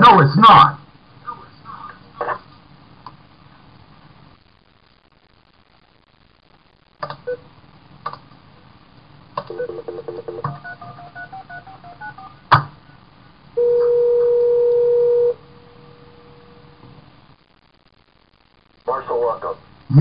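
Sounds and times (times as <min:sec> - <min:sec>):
telephone ringing tone: 0:09.5 - 0:12.4, 0:13.6 - 0:15.4
touch-tone keypad beeps: 0:10.5 - 0:12.3.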